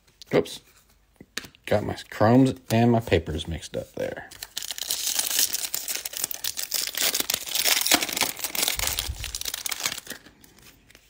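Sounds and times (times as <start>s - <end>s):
foil wrapper tearing and crinkling: 4.4s - 11.0s.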